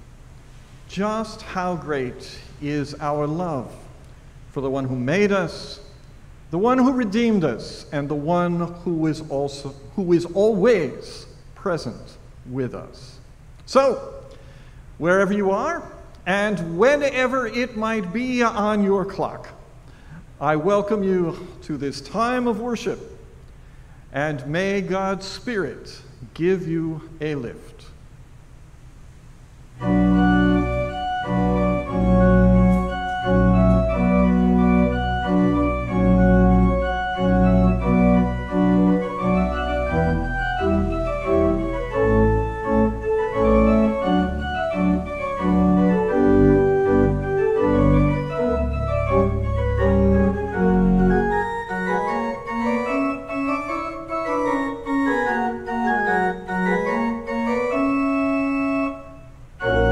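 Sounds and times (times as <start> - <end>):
church pipe organ playing: 0.9 - 3.8, 4.6 - 11.8, 15.0 - 19.5, 20.4 - 23.0, 29.8 - 59.9.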